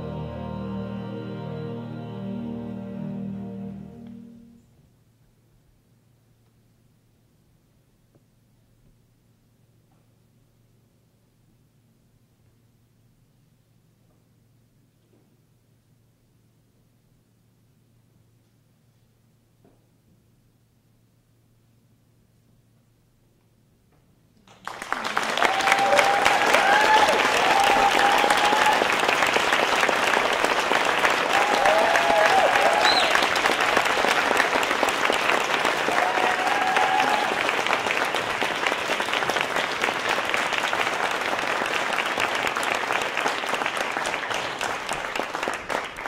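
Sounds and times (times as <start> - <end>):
audience applause: 24.5 - 46.0
audience cheering: 24.8 - 43.3.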